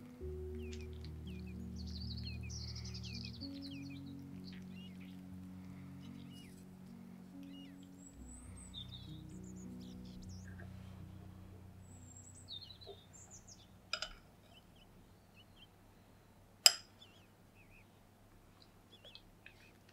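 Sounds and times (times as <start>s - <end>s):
low drone: 0.0s - 15.3s
small birds chirping: 0.0s - 19.9s.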